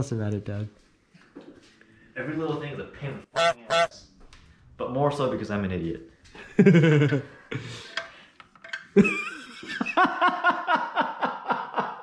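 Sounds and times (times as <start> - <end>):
people laughing: 6.4 - 7.9, 9.0 - 12.0.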